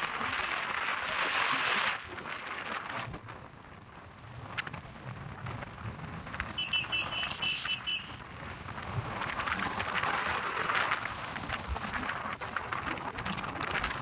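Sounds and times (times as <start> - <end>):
motorcycle road noise: 0.0 - 14.0.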